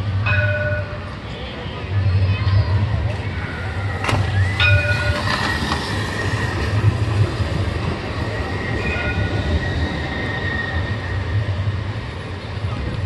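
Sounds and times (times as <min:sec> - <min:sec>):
tram running gear rumble: 0:00.0 - 0:13.0
high-pitched wheel squeal: 0:08.1 - 0:11.6.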